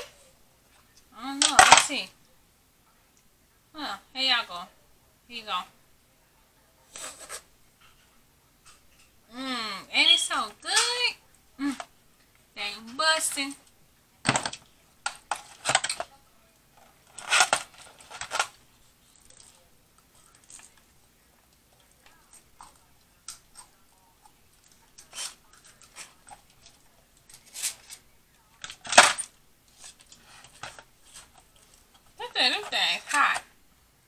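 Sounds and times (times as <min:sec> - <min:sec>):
knife and fork scraping foil pans: 0:06.9 - 0:07.5, 0:17.1 - 0:18.6, 0:25.0 - 0:26.7, 0:27.3 - 0:28.0
foil packet crinkling: 0:16.8 - 0:20.8.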